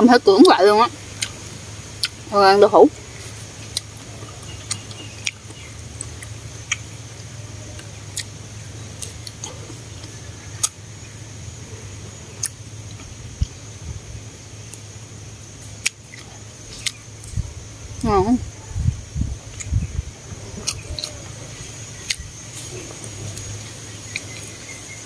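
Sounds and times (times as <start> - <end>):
steady low hum: 0.0 - 25.0
wet chewing mouth clicks: 1.2 - 1.4, 2.0 - 2.2, 3.6 - 6.9, 15.8 - 17.4, 19.5 - 19.8, 20.6 - 21.2, 22.0 - 22.3.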